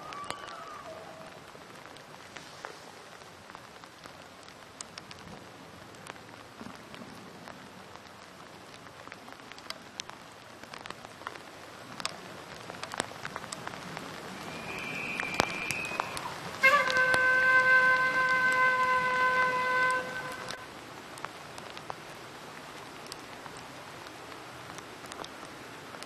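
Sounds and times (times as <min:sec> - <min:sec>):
light rain hissing: 0:00.0 - 0:26.0
rain drops ticking: 0:00.0 - 0:26.0.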